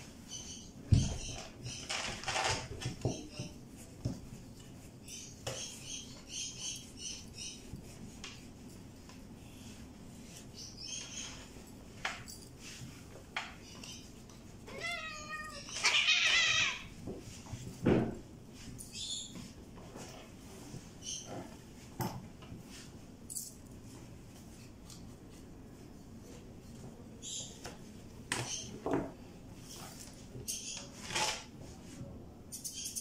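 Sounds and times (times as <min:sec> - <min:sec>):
cat meowing: 0:14.7 - 0:16.9.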